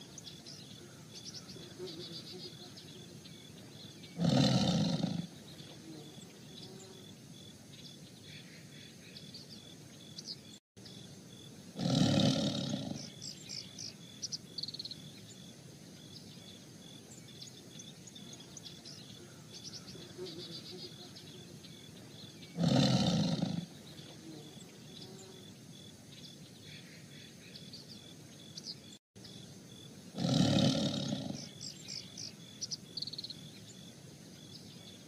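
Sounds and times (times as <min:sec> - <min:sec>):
faint bird chirps: 0:00.0 - 0:11.5, 0:12.3 - 0:35.0
tigers roaring: 0:04.1 - 0:05.4, 0:11.8 - 0:13.2, 0:22.5 - 0:23.8, 0:30.1 - 0:31.6.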